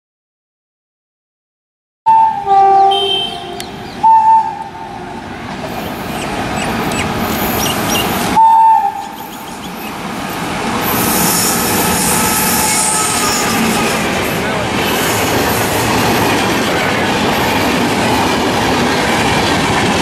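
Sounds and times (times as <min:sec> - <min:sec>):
two-note locomotive horn: 0:02.1 - 0:05.0, 0:11.2 - 0:14.0
train rumbling on rails: 0:02.1 - 0:20.0
high-pitched squeal: 0:05.7 - 0:16.0.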